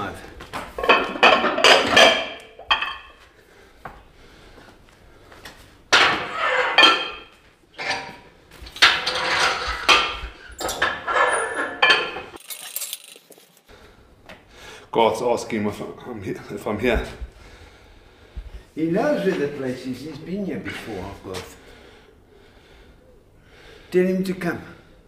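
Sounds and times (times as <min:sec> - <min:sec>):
metal weight plates clanking: 0:06.0 - 0:08.2, 0:08.8 - 0:13.1.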